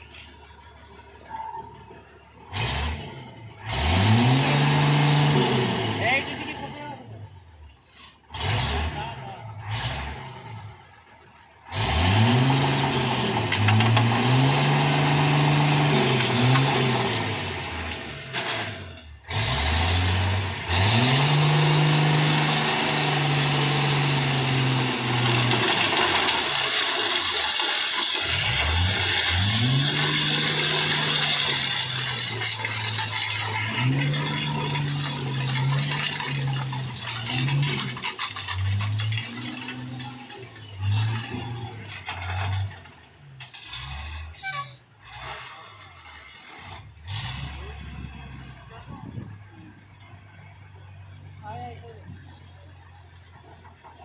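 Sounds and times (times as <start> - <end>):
heavy vehicle engine revving: 0.0 - 54.0
rattling clatter: 24.5 - 44.6.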